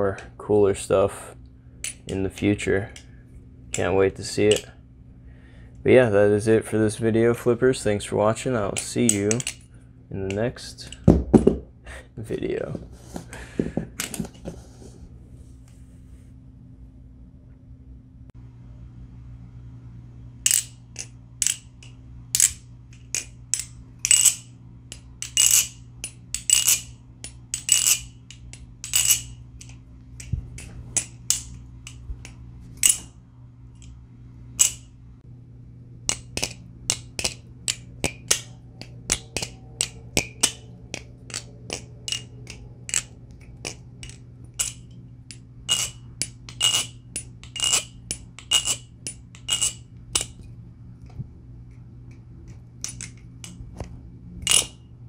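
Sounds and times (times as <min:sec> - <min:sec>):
butterfly knife clicking and clacking: 0:08.8 - 0:09.6, 0:20.5 - 0:33.1, 0:34.6 - 0:34.8, 0:36.1 - 0:50.4, 0:52.8 - 0:53.6, 0:54.4 - 0:54.8.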